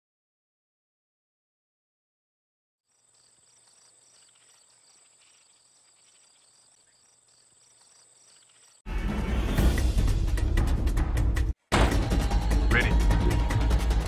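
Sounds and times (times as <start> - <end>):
insect chirping: 2.8 - 8.8
high insect whine: 2.9 - 8.8
loud music with heavy drums: 8.9 - 14.0.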